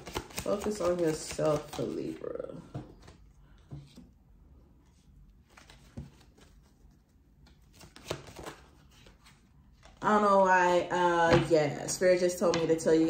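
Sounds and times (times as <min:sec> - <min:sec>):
cards tapping and sliding: 0:00.0 - 0:04.1, 0:07.4 - 0:09.3.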